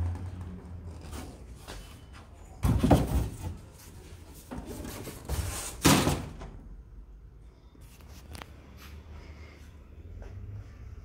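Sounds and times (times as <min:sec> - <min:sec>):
scraping handling noises: 0:00.2 - 0:06.3.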